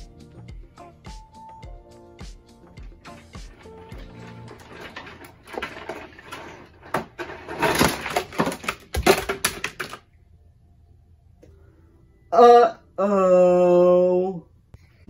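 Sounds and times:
plastic toys clattering: 3.2 - 10.0.

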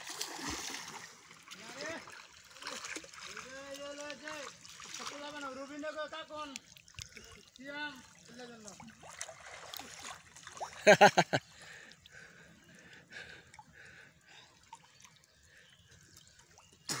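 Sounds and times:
water sloshing and trickling: 0.0 - 16.9.

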